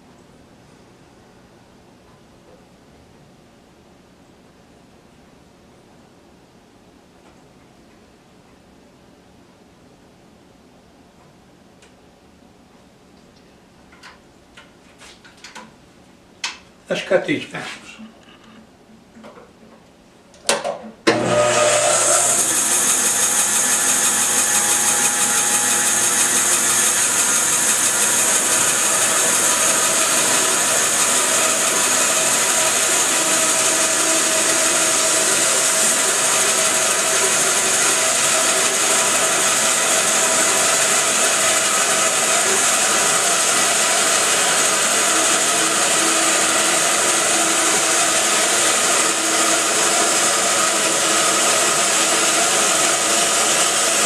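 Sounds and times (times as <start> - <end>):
bandsaw running with high hiss: 21.2 - 54.0.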